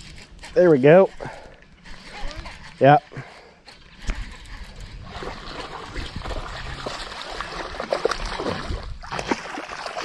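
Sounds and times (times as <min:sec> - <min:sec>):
creek water splashing: 0:00.1 - 0:10.0
fish thrashing in water: 0:03.6 - 0:10.0.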